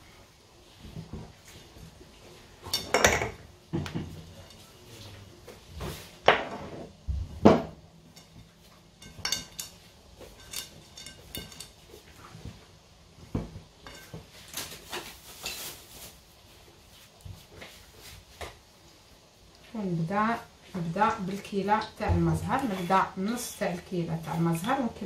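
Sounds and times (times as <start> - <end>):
knocks and clinks against glass bowl: 9.0 - 11.8
hands working dough: 19.5 - 25.0.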